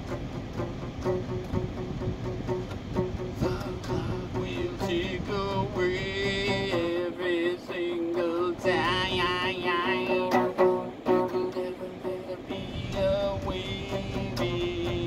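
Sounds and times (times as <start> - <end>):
acoustic guitar strumming: 0.0 - 15.0
man singing: 3.3 - 15.0.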